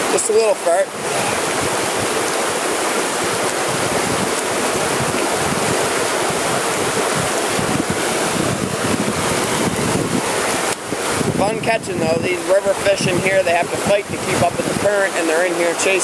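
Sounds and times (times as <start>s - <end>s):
river current rushing: 0.0s - 16.0s
wind noise on microphone: 0.0s - 16.0s.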